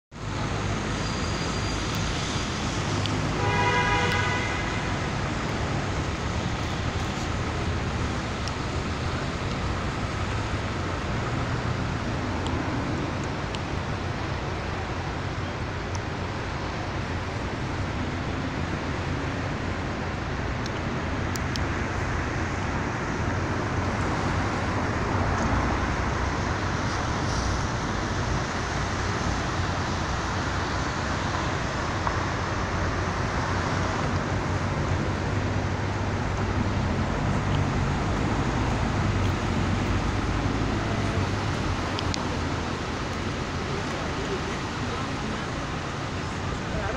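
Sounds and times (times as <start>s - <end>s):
city road traffic: 0.1s - 46.9s
vehicle horn toot: 3.4s - 4.9s.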